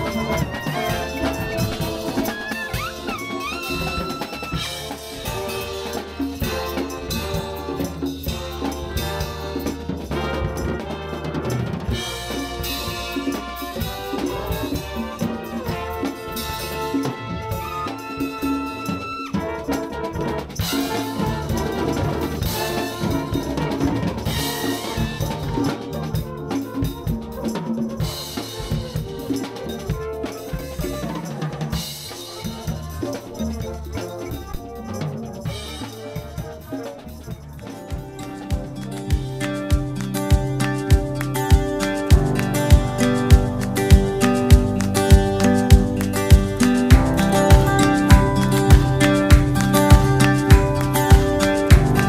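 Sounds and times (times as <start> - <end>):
held pitched notes: 0.0 - 8.2, 32.7 - 52.0
drum kit beat: 0.0 - 52.0.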